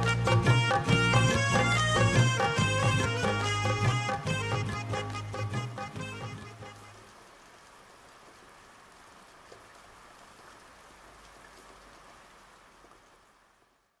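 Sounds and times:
faint steady rain: 0.0s - 14.0s
raindrop ticks: 9.2s - 13.8s.

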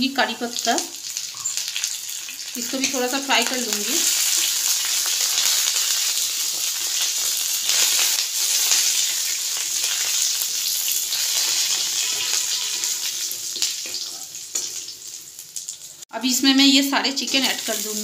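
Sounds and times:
food sizzling in hot oil: 0.0s - 18.0s
metal spatula scraping a pan: 11.1s - 13.0s.

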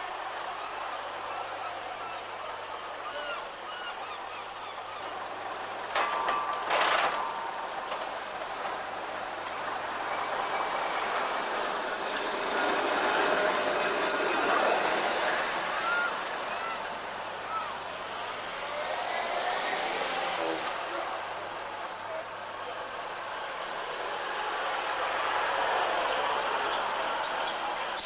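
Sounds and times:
tram clatter: 0.0s - 28.0s
tram wheels rumbling on rails: 0.0s - 28.0s
wheel squeals: 25.0s - 28.0s.

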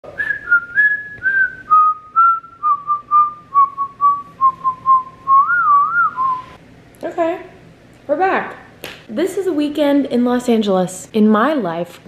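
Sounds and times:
woman whistling a tune: 0.1s - 6.6s.

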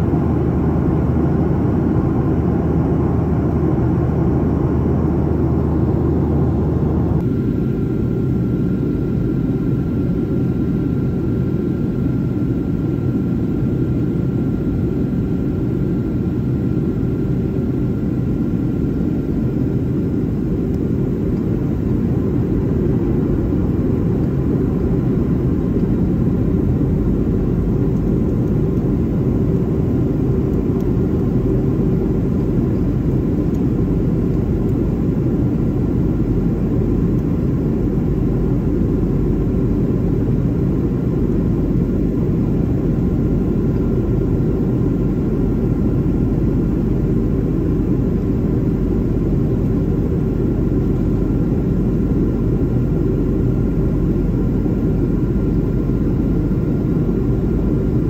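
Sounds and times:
faint constant whines: 0.0s - 58.0s
jet engine rumble: 0.0s - 58.0s.

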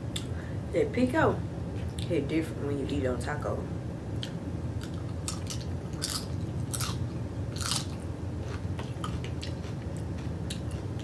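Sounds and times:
chewing crunchy chips: 4.2s - 11.0s.

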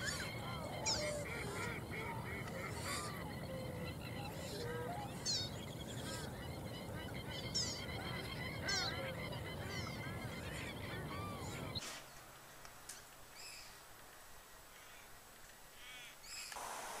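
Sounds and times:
birds honking: 0.0s - 11.8s.

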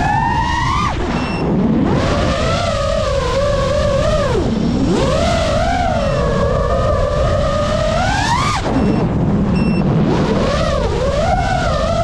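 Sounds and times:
quadcopter motors whining: 0.0s - 9.1s, 10.2s - 12.0s.

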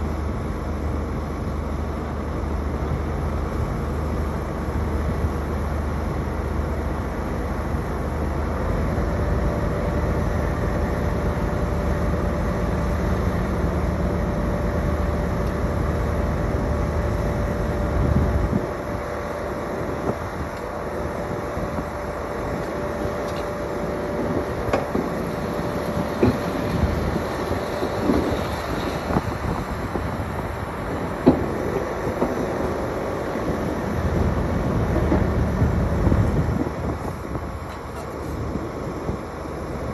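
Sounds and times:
deep diesel engine rumble: 0.0s - 39.9s
hydraulic whine: 0.0s - 39.9s.

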